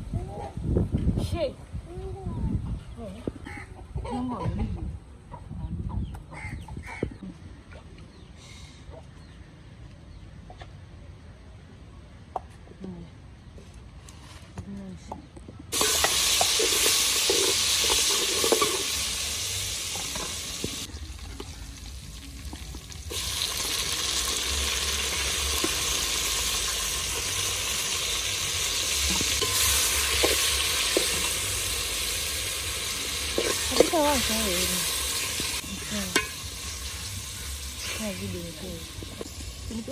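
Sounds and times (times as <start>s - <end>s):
food sizzling in hot oil: 15.7s - 39.9s.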